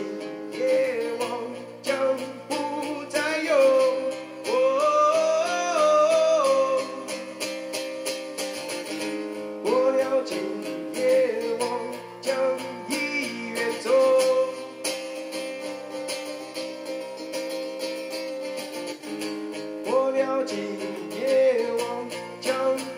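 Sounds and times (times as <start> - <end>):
man singing: 0.0 - 8.1, 9.0 - 15.3, 19.8 - 22.9
acoustic guitar strumming: 0.0 - 22.9.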